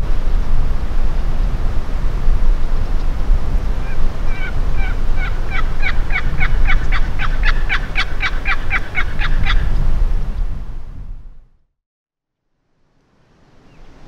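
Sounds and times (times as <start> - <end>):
wind rumble on microphone: 0.0 - 11.6
turkey call notes: 3.8 - 9.8.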